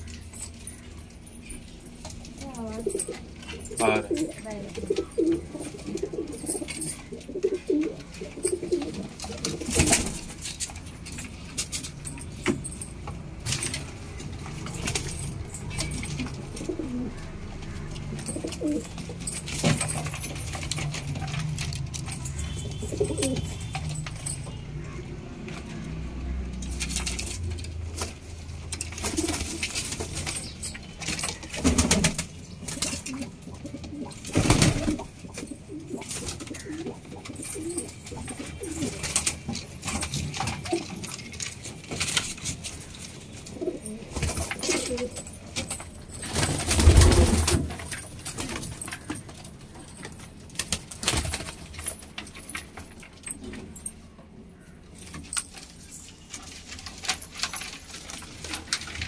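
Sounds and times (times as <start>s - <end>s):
pigeons cooing: 2.6s - 10.4s, 15.7s - 20.5s, 22.0s - 25.0s, 31.2s - 39.3s, 43.4s - 45.3s.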